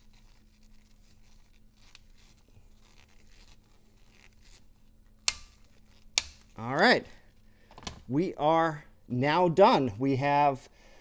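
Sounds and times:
gloved hands rubbing on tool: 0.0 - 7.4.

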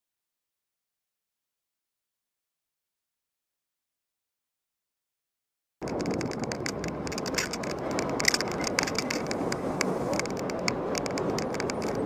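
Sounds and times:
clicks and rattles: 5.8 - 12.0
vehicle and road noise: 5.8 - 12.0.

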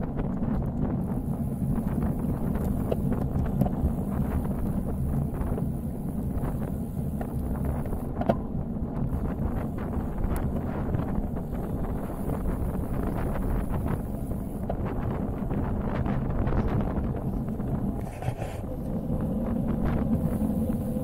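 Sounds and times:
wind buffeting microphone: 0.0 - 21.0
faint ticks: 2.4 - 4.7, 10.2 - 10.6.

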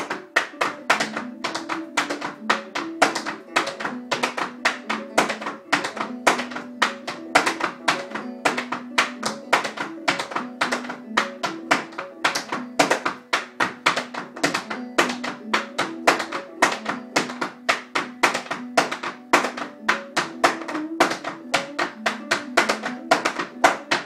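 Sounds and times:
banjo tune: 0.0 - 24.0
tap shoes dancing: 0.0 - 24.0.

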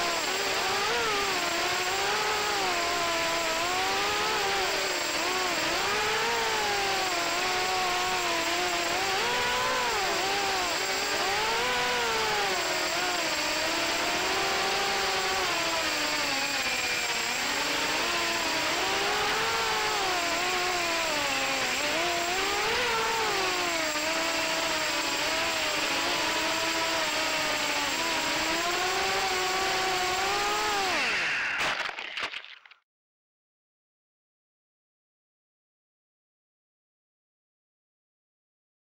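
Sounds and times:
drone motors whining: 27.6 - 32.8.

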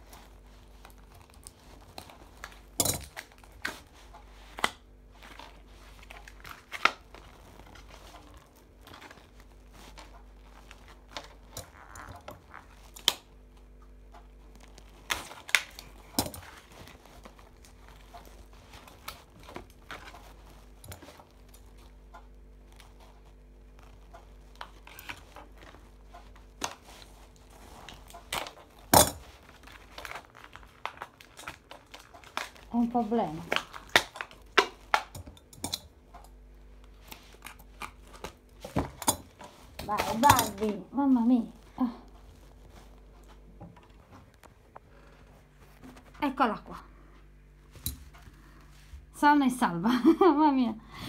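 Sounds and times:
plastic packaging crinkling: 0.0 - 46.2.

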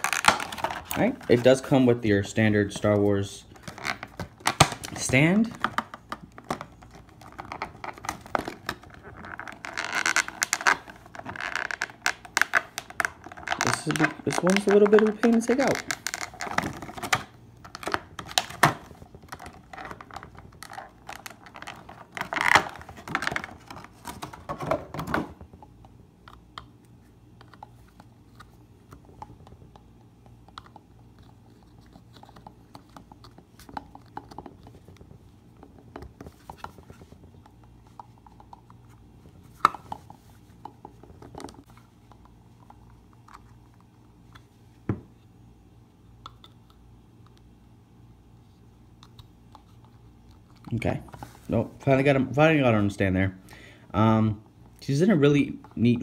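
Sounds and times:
plastic packaging crinkling: 0.0 - 1.6, 3.5 - 25.1.

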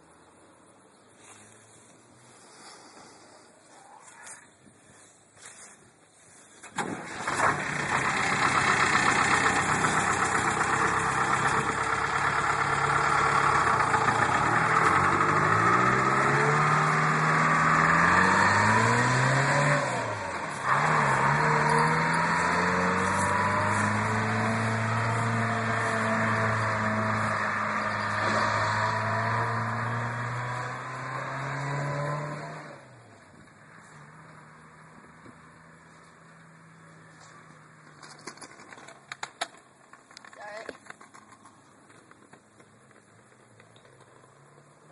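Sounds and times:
diesel truck engine starting and revving: 6.6 - 38.0.

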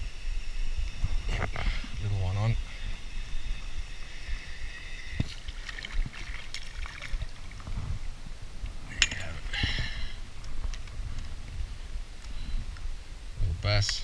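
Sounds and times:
steady high buzz: 0.0 - 14.0.

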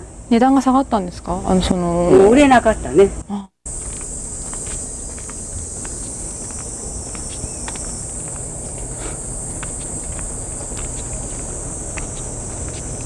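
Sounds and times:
faint footsteps: 3.7 - 13.0
high-pitched insect chorus: 3.7 - 13.0.

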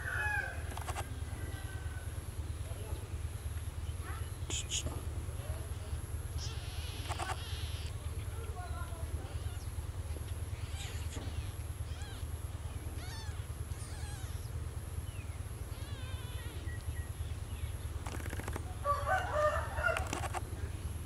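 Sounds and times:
rooster crowing: 0.0 - 2.2, 18.8 - 20.4
steady low hum: 0.0 - 21.0
small birds chirping: 0.5 - 19.1.

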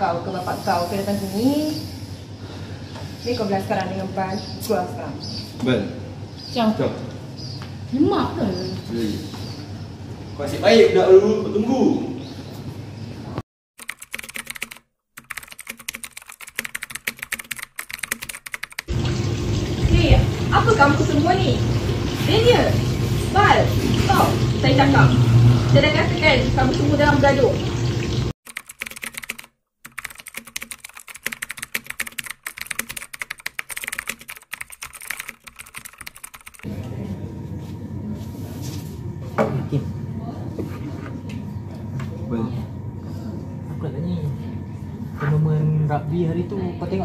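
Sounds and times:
keyboard typing clicks: 13.8 - 18.9, 28.5 - 36.7
low room hum: 36.7 - 47.0.

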